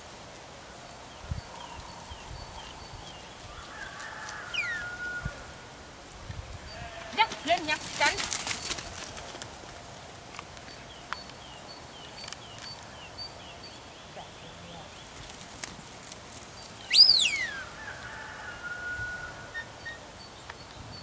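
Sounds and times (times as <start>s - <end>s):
faint small birds chirping: 10.4s - 17.7s
herding whistle: 16.9s - 17.7s.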